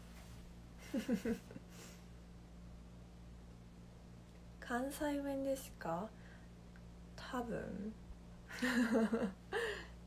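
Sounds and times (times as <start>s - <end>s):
low room hum: 0.0s - 10.0s
woman laughing: 0.8s - 2.0s, 8.5s - 9.9s.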